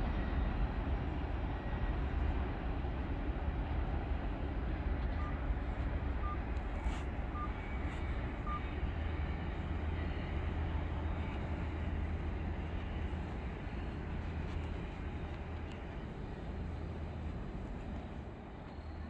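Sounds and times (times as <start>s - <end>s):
freight train rumble: 0.0s - 19.0s
short beeps: 6.2s - 6.5s, 7.3s - 10.4s.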